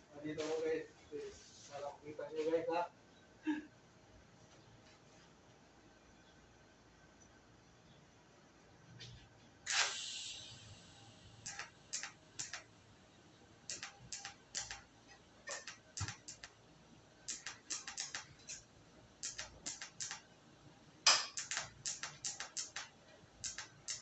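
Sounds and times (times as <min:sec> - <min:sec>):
welding arc crackling: 0:09.7 - 0:12.8, 0:13.6 - 0:16.6, 0:17.2 - 0:20.3, 0:21.1 - 0:24.0.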